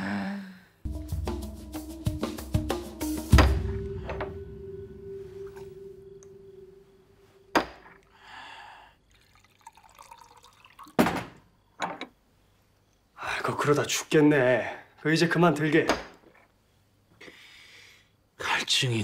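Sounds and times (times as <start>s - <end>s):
ringing note from a hit: 3.4s - 8.0s
liquid pouring into a cup: 9.0s - 11.0s.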